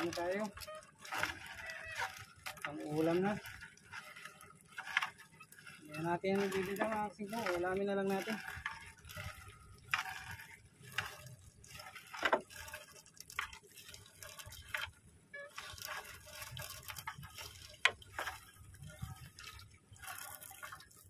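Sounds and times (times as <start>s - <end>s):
seawater dripping from net: 0.0s - 21.0s.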